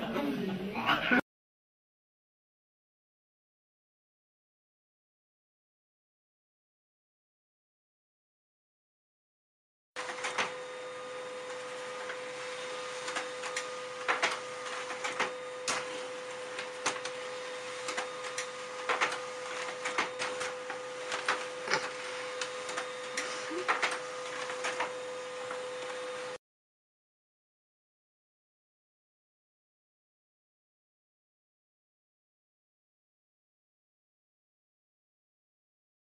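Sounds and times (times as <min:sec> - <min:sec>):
printer clicks and clunks: 0:10.0 - 0:10.7, 0:12.8 - 0:26.0
laser printer humming: 0:10.0 - 0:26.4.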